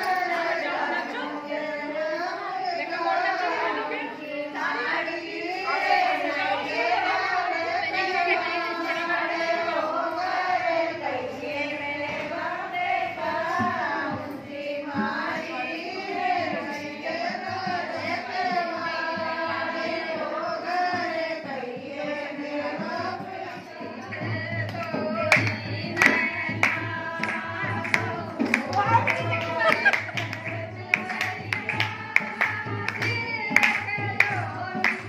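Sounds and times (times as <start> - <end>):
women singing folk song: 0.0 - 35.0.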